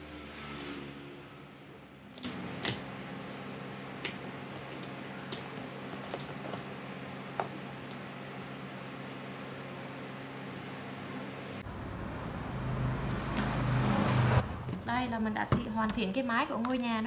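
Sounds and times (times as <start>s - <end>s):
steady low hum: 2.9s - 15.4s.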